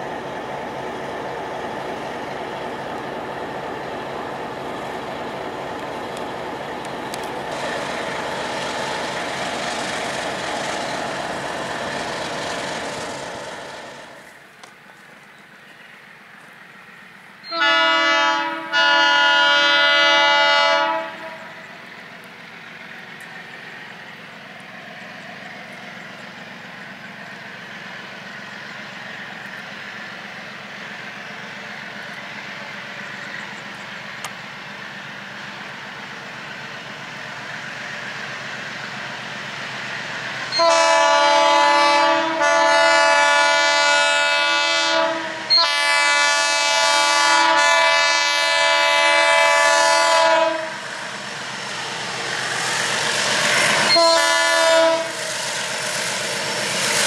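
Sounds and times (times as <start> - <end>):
locomotive air horn blasts: 17.5 - 21.6, 40.5 - 50.8, 53.8 - 55.2
low engine rumble: 20.8 - 40.6.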